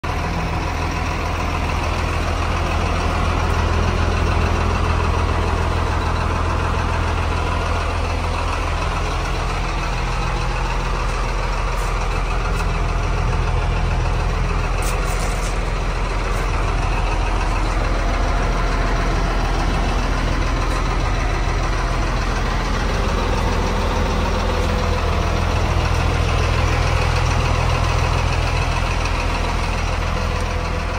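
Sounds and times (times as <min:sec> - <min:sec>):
truck engine idling: 0:00.0 - 0:30.9.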